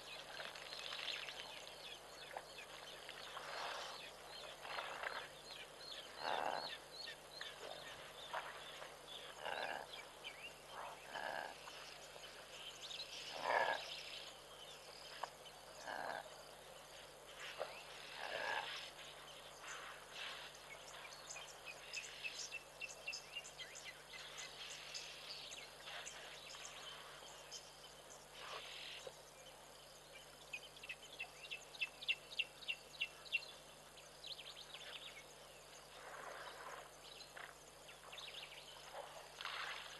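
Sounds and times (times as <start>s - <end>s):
frogs croaking: 0.0s - 19.9s.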